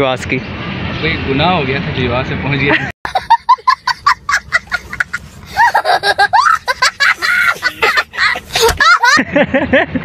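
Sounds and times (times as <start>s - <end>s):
small child laughing: 3.1s - 10.0s.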